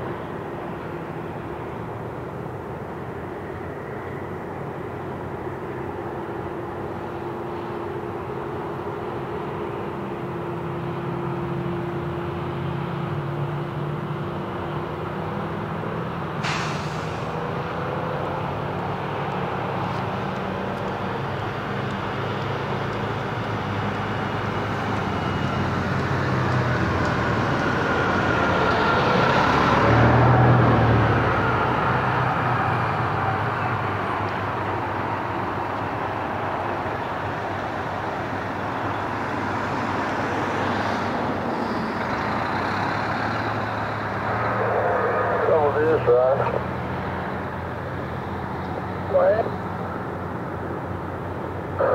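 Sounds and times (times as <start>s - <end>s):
traffic hum: 0.0s - 51.9s
vehicle passing close: 15.4s - 51.9s.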